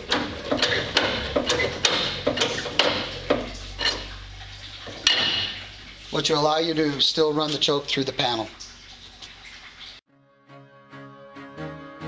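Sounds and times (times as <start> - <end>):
hand pump metallic clanking: 0.0 - 5.8.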